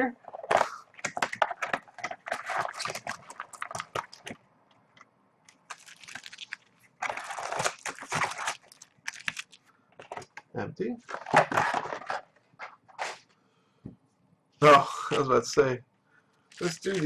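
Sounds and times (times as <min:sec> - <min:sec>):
plastic wrap crinkling: 0:00.4 - 0:04.4, 0:05.5 - 0:10.4, 0:16.5 - 0:17.0.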